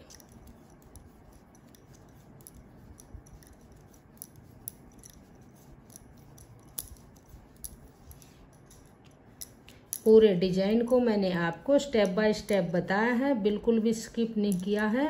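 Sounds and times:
knitting needles clicking: 0.0s - 10.2s, 14.4s - 15.0s.

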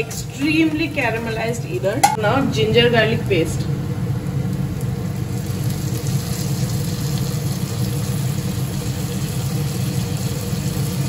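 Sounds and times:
onions frying in hot oil: 2.5s - 11.0s.

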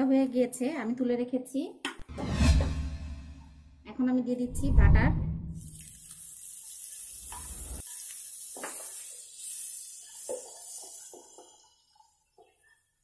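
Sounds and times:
butter sizzling in a pan: 5.6s - 12.6s.

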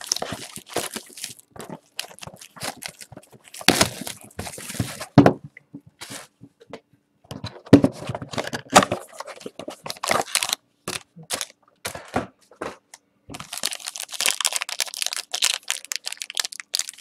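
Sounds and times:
plastic shrink wrap crinkling: 0.0s - 5.2s, 9.0s - 11.5s, 13.3s - 17.0s.

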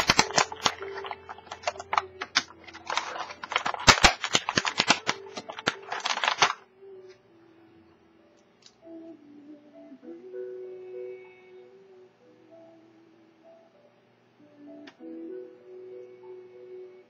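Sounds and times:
plastic packaging crackling: 0.0s - 6.6s.

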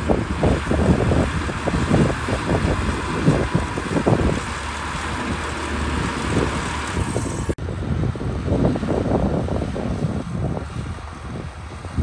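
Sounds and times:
blade pushing soil: 0.0s - 7.6s
bulldozer diesel engine: 0.0s - 12.0s
wind buffeting microphone: 0.0s - 12.0s.

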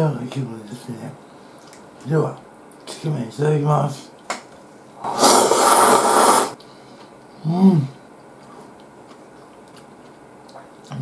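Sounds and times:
closed-mouth hum while chewing: 1.3s - 3.0s, 6.6s - 11.0s
person slurping noodles: 5.0s - 6.6s.

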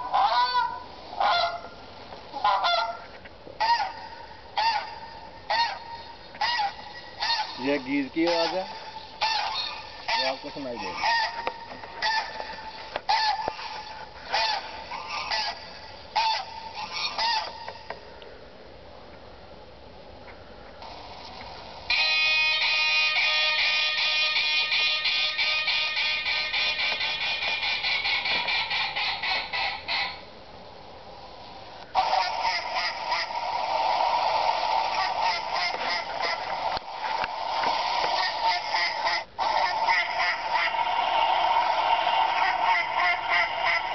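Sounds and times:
recorded goose honks: 0.0s - 18.0s, 21.9s - 30.3s, 31.9s - 43.9s.

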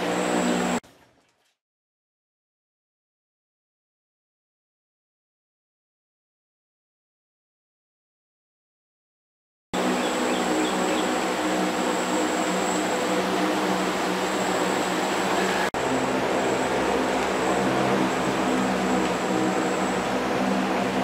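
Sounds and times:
mechanical hum with high whine: 0.0s - 0.8s, 9.8s - 21.0s.

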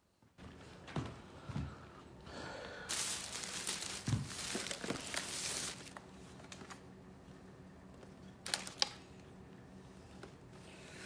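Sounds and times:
rustling and crinkling handling: 2.9s - 6.8s.

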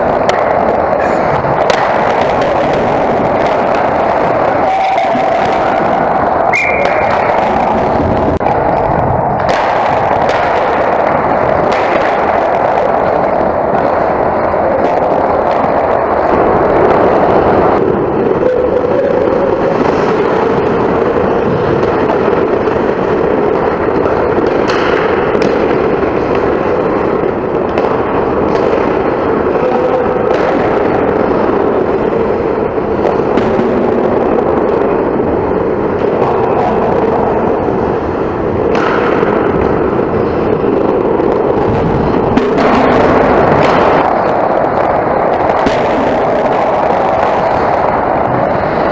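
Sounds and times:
hockey sticks and puck knocking: 0.0s - 17.7s, 23.7s - 32.3s, 38.6s - 48.9s
ice rink rumble: 0.0s - 48.9s.

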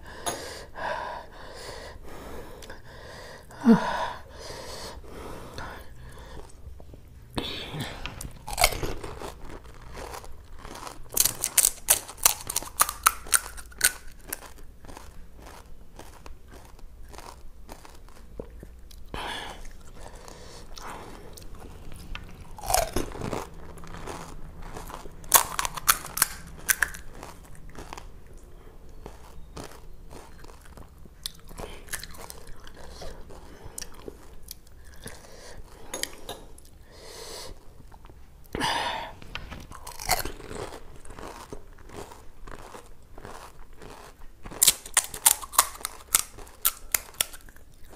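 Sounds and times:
loud crunching of crisp food: 8.0s - 35.8s, 39.4s - 47.9s
wet chewing: 8.1s - 36.8s, 39.4s - 47.9s.

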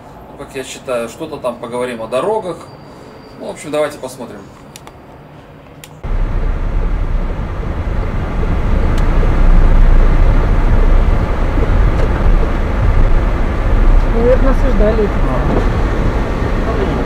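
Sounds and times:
car engine and tyre rumble: 5.6s - 17.0s.

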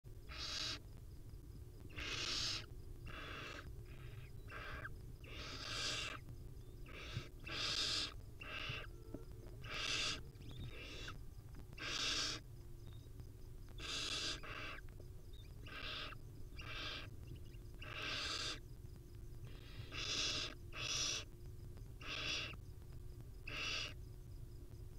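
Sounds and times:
owl chicks hissing: 0.3s - 0.8s, 1.9s - 6.2s, 6.8s - 8.9s, 9.6s - 11.2s, 11.8s - 12.4s, 13.8s - 14.9s, 15.6s - 18.6s, 19.4s - 21.3s, 22.0s - 22.6s, 23.5s - 24.0s.

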